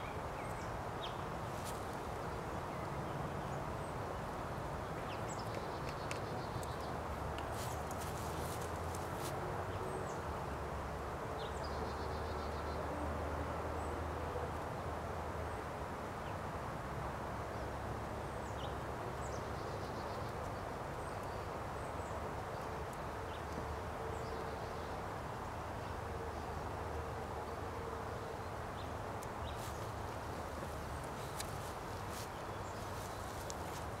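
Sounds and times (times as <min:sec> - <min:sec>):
small birds chirping: 0:05.0 - 0:10.3, 0:28.7 - 0:34.0.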